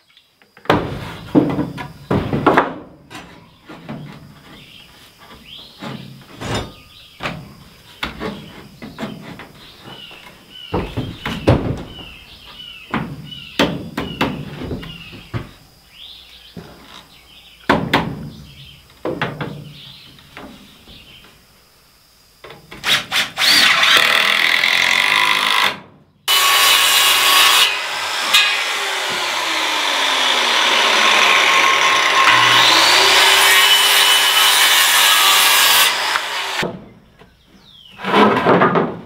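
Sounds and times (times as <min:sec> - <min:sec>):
wooden knocks and thuds: 0:00.6 - 0:15.6, 0:17.7 - 0:21.3, 0:36.6 - 0:37.4, 0:38.0 - 0:39.0.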